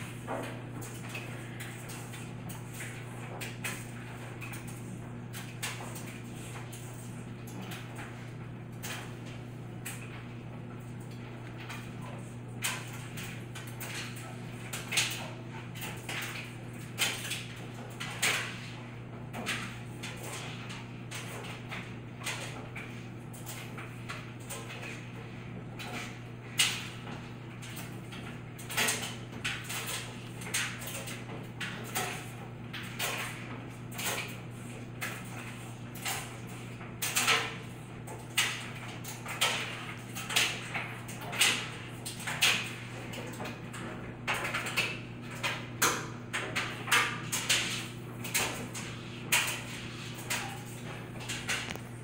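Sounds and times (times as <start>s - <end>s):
air pump humming: 0.0s - 19.0s, 44.0s - 52.0s.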